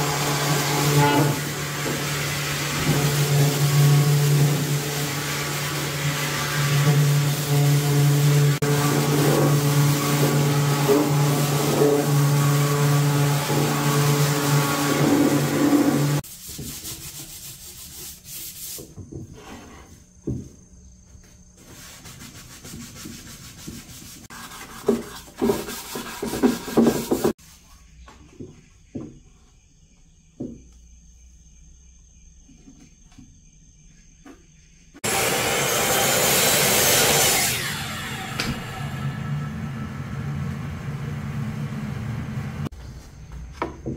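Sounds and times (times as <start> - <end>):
hand sanding on wood: 0.0 - 19.0, 21.6 - 27.4
wood knocking on wood: 30.4 - 30.8, 43.5 - 43.9
mitre saw cutting wood: 35.0 - 40.1
orbital sander buzzing: 35.0 - 42.7.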